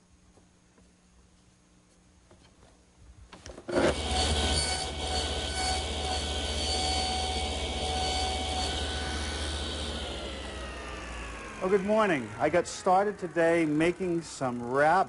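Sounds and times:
table saw cutting wood: 0:03.7 - 0:15.0.

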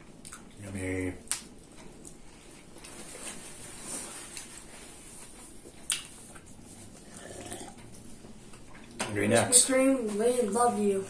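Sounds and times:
chewing and mouth noises: 0:00.0 - 0:03.1, 0:04.1 - 0:09.0.

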